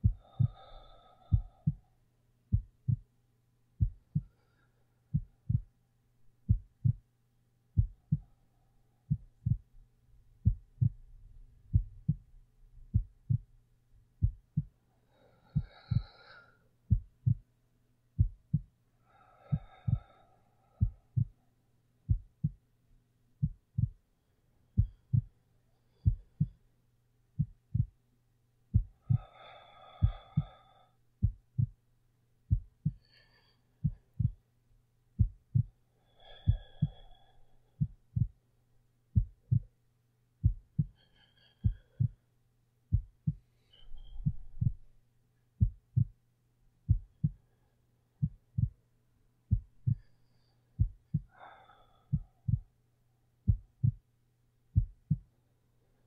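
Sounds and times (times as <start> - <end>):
heartbeat thumps: 0.0 - 1.9, 2.5 - 3.1, 3.8 - 4.4, 5.1 - 5.8, 6.4 - 7.1, 7.8 - 8.4, 9.1 - 14.8, 15.6 - 16.1, 16.9 - 17.5, 18.2 - 18.7, 19.5 - 20.2, 20.8 - 21.4, 22.1 - 22.6, 23.4 - 24.0, 24.8 - 25.4, 26.0 - 26.6, 27.4 - 28.0, 28.7 - 29.3, 30.0 - 30.6, 31.2 - 31.8, 32.5 - 33.0, 33.8 - 34.4, 35.2 - 35.8, 36.4 - 38.4, 39.1 - 39.7, 40.4 - 41.0, 41.6 - 42.2, 42.9 - 44.9, 45.6 - 46.2, 46.9 - 47.5, 48.2 - 48.8, 49.5 - 50.1, 50.8 - 51.3, 52.1 - 52.7, 53.4 - 54.0, 54.7 - 55.3
soft slow breathing: 0.0 - 3.1, 3.8 - 5.8, 7.8 - 9.8, 14.2 - 17.5, 18.2 - 22.6, 23.4 - 26.8, 28.7 - 31.8, 32.5 - 34.5, 35.2 - 38.4, 40.4 - 45.0, 46.9 - 54.1.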